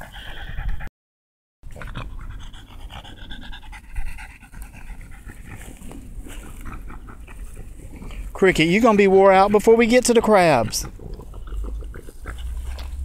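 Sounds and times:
dog panting: 0.0s - 0.9s, 1.7s - 13.0s.

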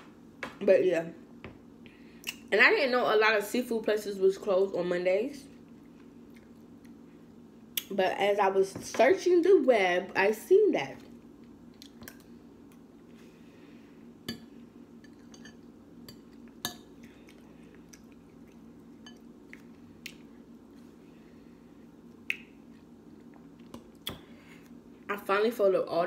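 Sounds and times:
soft chewing: 5.4s - 7.9s, 11.0s - 13.5s, 14.4s - 25.1s.

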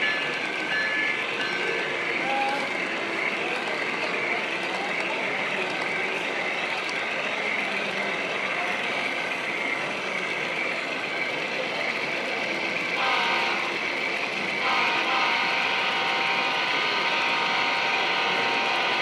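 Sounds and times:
steady background noise: 0.0s - 19.0s
model train horn chord: 13.0s - 13.8s, 14.6s - 19.0s.

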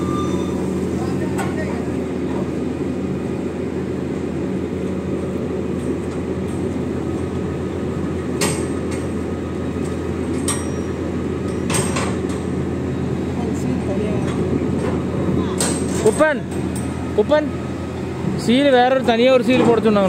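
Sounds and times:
diesel engine rumbling: 0.0s - 20.0s.

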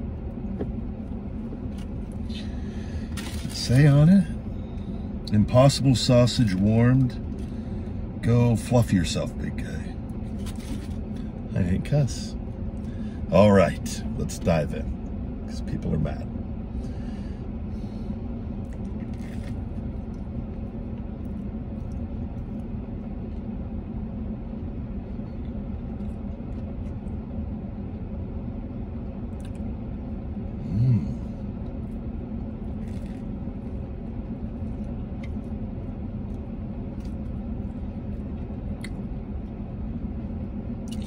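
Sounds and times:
closed-mouth hum: 0.0s - 41.0s
vehicle cabin rumble: 0.0s - 41.0s
faint chewing clicks: 29.3s - 29.7s.

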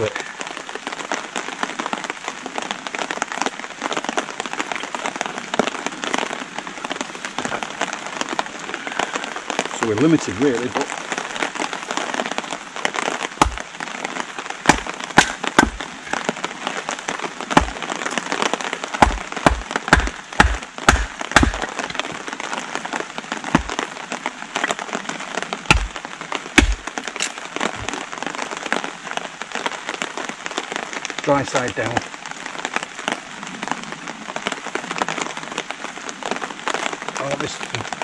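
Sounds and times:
heavy rain falling: 0.0s - 38.0s
hatchet chopping branches: 13.4s - 13.6s, 14.7s - 15.9s, 17.5s - 17.9s, 19.0s - 22.1s, 23.5s - 23.8s, 25.7s - 26.0s, 26.6s - 27.4s.

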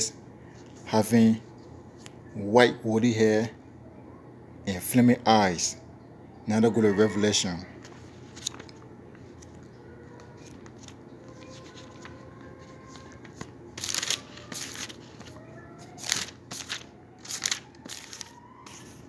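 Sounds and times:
faint steady hum: 0.0s - 19.0s
pages turning: 7.8s - 19.0s.

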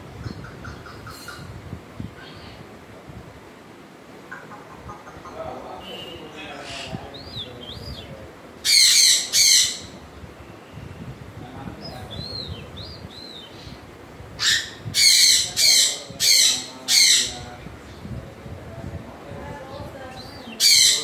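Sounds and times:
parrot screeching: 8.6s - 10.0s, 14.4s - 17.4s, 20.6s - 21.0s.

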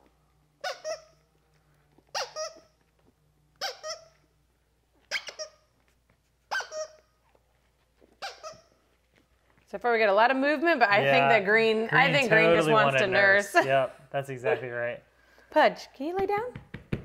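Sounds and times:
squeaky dog toy squeaking: 0.6s - 1.3s, 2.1s - 2.8s, 3.6s - 4.4s, 5.0s - 5.8s, 6.5s - 7.4s, 8.0s - 8.9s.

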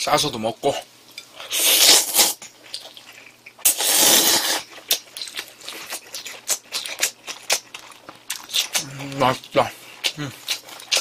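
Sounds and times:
person slurping noodles: 1.5s - 2.4s, 3.6s - 4.7s
wet chewing: 1.6s - 11.0s.

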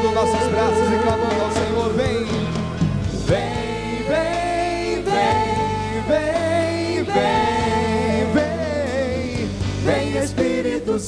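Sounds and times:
sustained backing chords: 0.0s - 11.0s.

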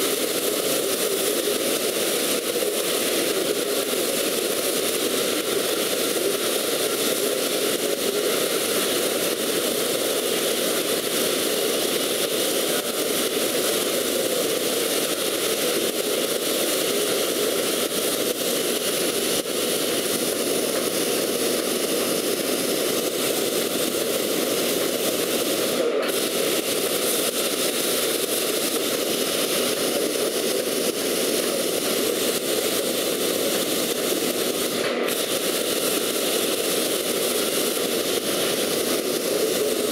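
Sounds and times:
plasma torch hissing: 0.0s - 39.9s.

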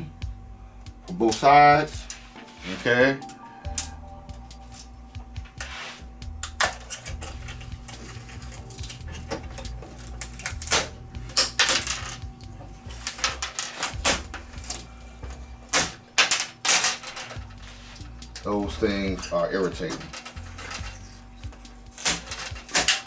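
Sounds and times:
plastic and metal parts rattling: 16.2s - 17.7s, 19.2s - 23.0s.

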